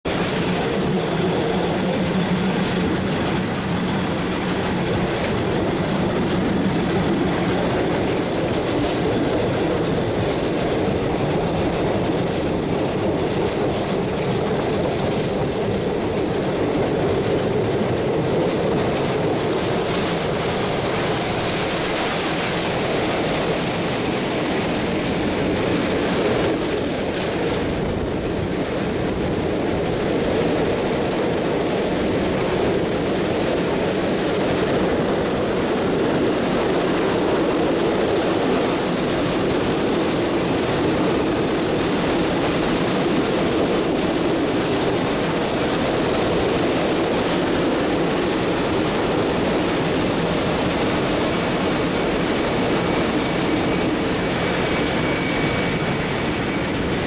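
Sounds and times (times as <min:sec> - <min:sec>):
rushing air: 0:00.0 - 0:57.0
train wheels rumbling on rails: 0:00.0 - 0:57.0.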